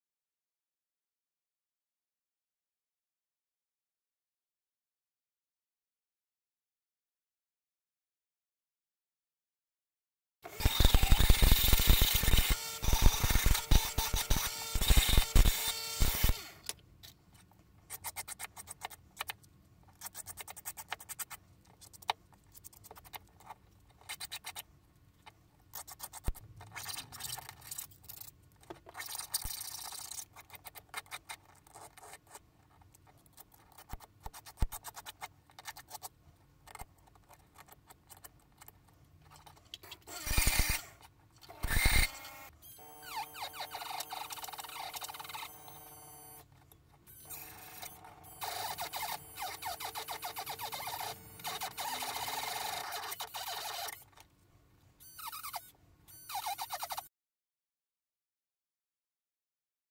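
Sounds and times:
needle file rasping on metal: 0:47.8 - 0:54.0.

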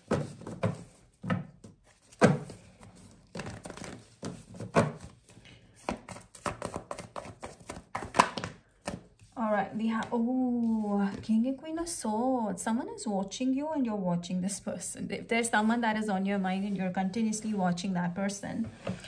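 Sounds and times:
cards being shuffled: 0:01.8 - 0:09.4.

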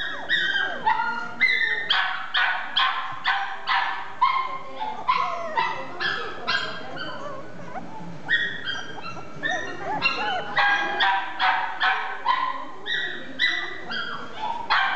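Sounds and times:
dog whining: 0:00.0 - 0:02.0, 0:05.0 - 0:11.4
small dog yapping: 0:00.0 - 0:14.1.

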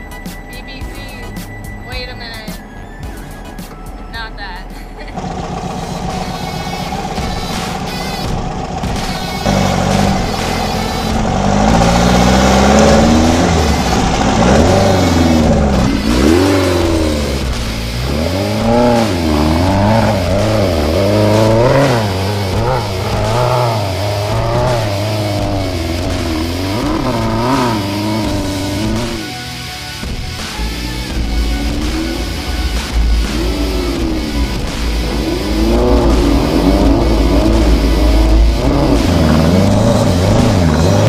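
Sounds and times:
engine revving hard: 0:06.4 - 0:29.4, 0:30.1 - 0:41.0.

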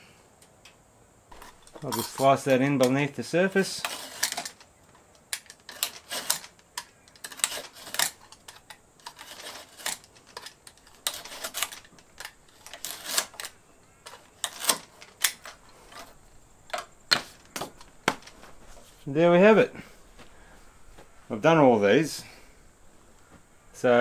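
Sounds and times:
hand tool clicking and scraping wood: 0:01.3 - 0:18.4.

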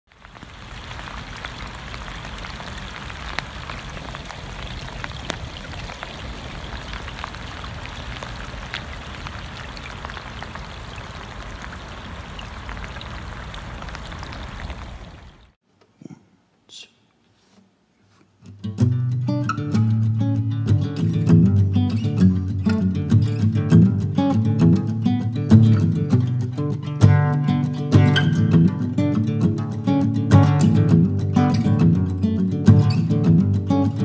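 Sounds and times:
rain falling on water: 0:00.1 - 0:15.6.

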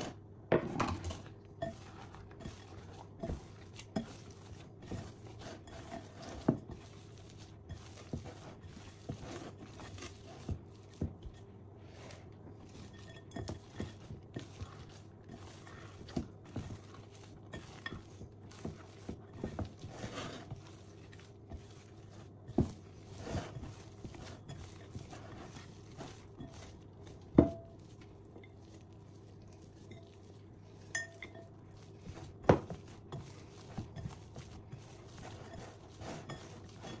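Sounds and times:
hands kneading sticky dough: 0:01.2 - 0:37.0.

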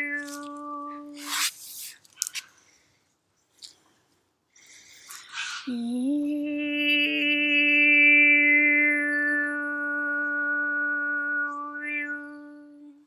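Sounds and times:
woman overtone singing: 0:00.0 - 0:01.3, 0:05.6 - 0:13.0
breath: 0:02.4 - 0:05.7.

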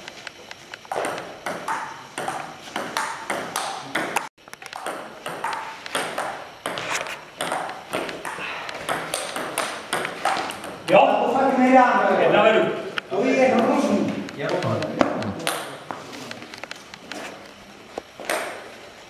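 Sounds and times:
table tennis ball clicking: 0:00.4 - 0:06.8, 0:07.4 - 0:10.8, 0:13.5 - 0:15.7.

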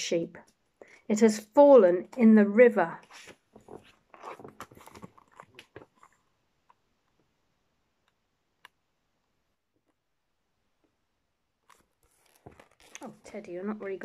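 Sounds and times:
book pages rustling: 0:03.0 - 0:06.4, 0:11.6 - 0:14.0.

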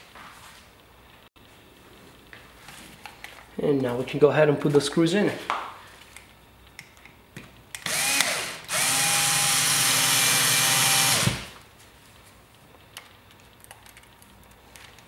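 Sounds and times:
cordless drill whirring: 0:07.8 - 0:11.6.

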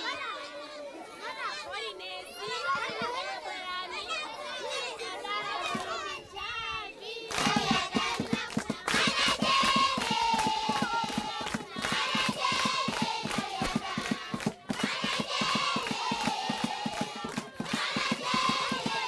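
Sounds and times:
children singing: 0:03.0 - 0:19.0
hands clapping a beat: 0:07.3 - 0:19.0.

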